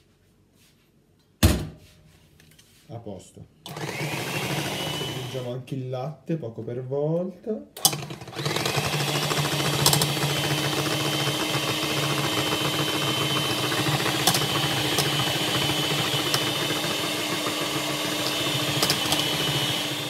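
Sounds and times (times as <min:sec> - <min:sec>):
electric hand mixer whisking: 0:03.7 - 0:05.6, 0:07.8 - 0:20.0.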